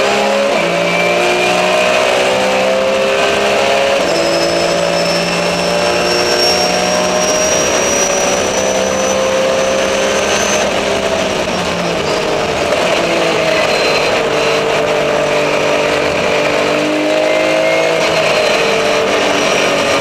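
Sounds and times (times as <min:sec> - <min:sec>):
race car engine revving: 0:00.0 - 0:20.0
thin high whine: 0:03.4 - 0:11.3.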